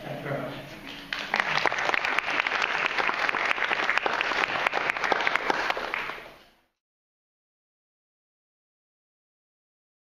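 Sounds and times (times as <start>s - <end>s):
audience applauding: 0.9s - 6.4s.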